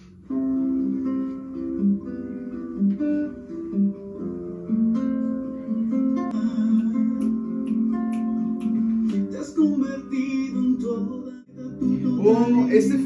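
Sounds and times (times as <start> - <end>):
acoustic guitar playing: 0.0 - 13.0.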